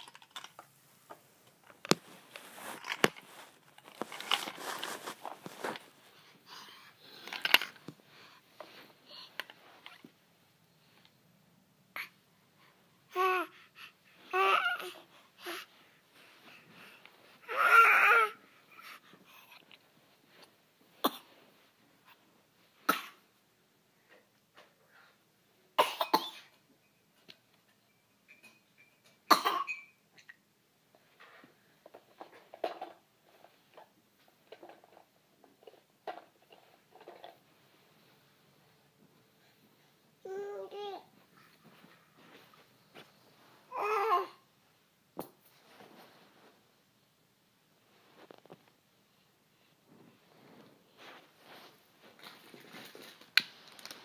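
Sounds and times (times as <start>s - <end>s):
baby babbling: 14.3s - 15.6s, 17.4s - 18.9s, 40.2s - 41.1s, 43.7s - 44.4s
loud cough: 25.8s - 26.5s, 29.3s - 29.7s.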